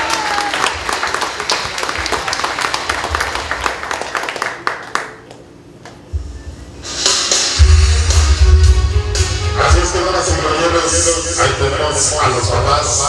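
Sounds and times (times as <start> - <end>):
people clapping: 0.0 - 6.0.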